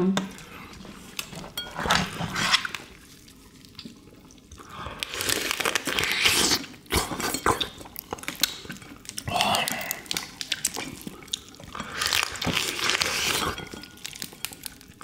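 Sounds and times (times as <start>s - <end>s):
wet slurping and sucking: 2.0s - 7.8s.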